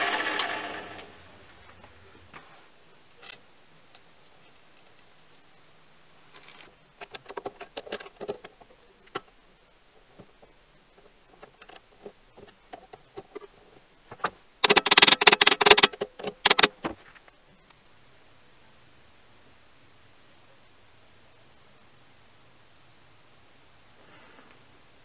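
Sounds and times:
metal clicking and rattling: 6.6 - 9.4, 10.1 - 17.0.

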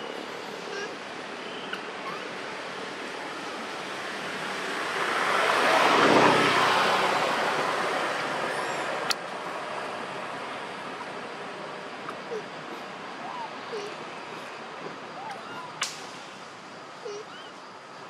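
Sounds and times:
vehicle passing by: 3.5 - 12.0.

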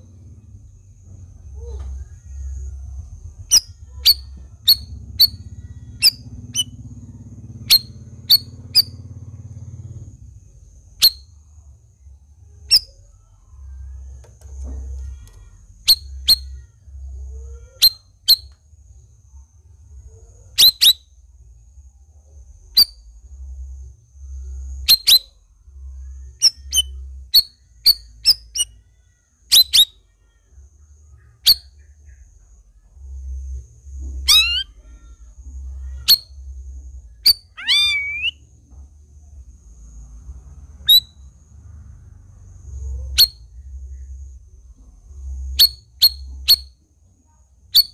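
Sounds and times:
bird chirping: 0.0 - 11.4, 12.0 - 18.6, 19.3 - 21.7, 22.4 - 23.5, 24.2 - 38.5, 40.8 - 41.3, 42.7 - 46.8, 47.7 - 47.9
bird warbled phrase: 34.3 - 35.1, 37.5 - 38.4.

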